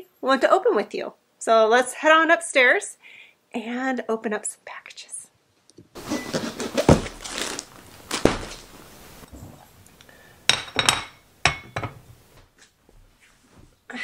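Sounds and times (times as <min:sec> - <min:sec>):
package thud: 0:06.3 - 0:08.8
mug clinking down: 0:10.5 - 0:12.0.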